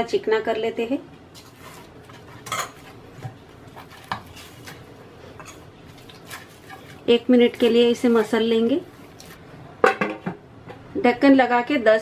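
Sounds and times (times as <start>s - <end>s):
hands kneading dough: 5.8s - 9.4s.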